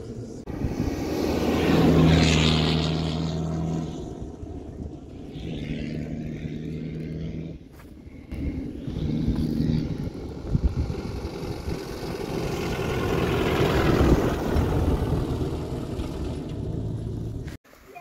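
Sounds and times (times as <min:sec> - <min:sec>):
rushing noise: 0:00.0 - 0:06.7
vehicle engine running: 0:00.0 - 0:17.6.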